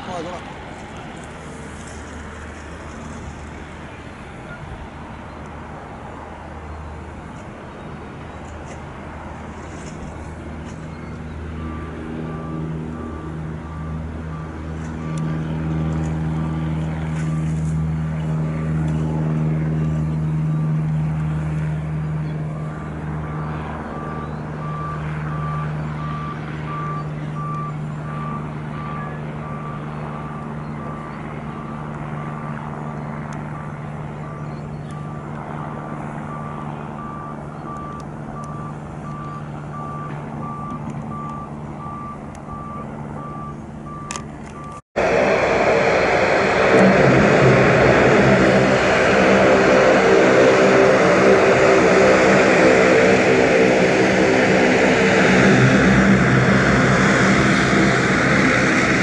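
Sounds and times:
engine drone: 0:00.0 - 0:59.0
reversing alarm beeping: 0:11.6 - 0:15.3, 0:23.9 - 0:31.8, 0:36.2 - 0:44.8, 0:45.6 - 0:59.0.

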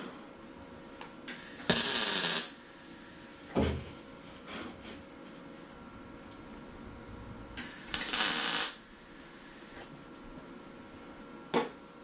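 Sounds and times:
welder crackling: 0:01.3 - 0:03.5, 0:07.6 - 0:09.9.

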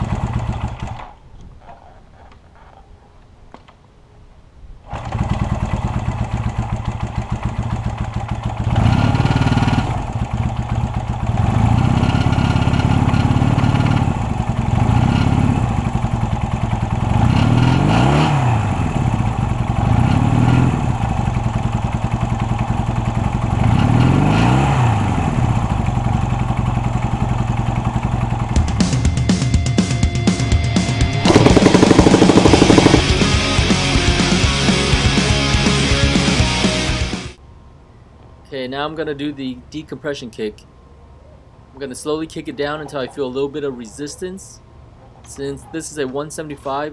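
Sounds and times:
motorcycle engine starting and revving: 0:00.0 - 0:01.2, 0:04.8 - 0:29.1, 0:30.7 - 0:35.1.

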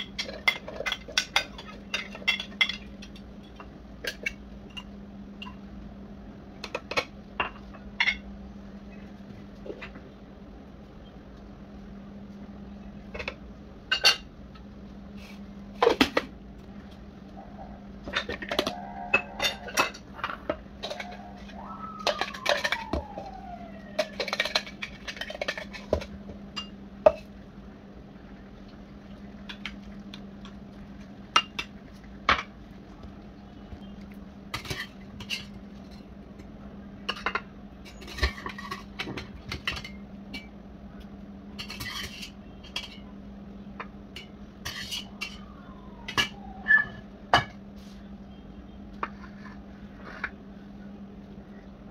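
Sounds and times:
dishes and utensils clinking: 0:00.0 - 0:05.6, 0:13.1 - 0:14.3, 0:18.0 - 0:23.3, 0:23.9 - 0:27.3, 0:34.5 - 0:36.1, 0:37.1 - 0:40.5, 0:41.6 - 0:43.1, 0:44.1 - 0:47.6
steady low hum: 0:00.0 - 0:51.9.

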